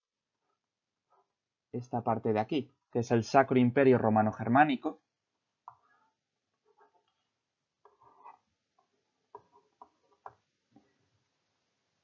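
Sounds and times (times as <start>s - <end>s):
stylus tapping on a tablet: 8.8s - 10.5s.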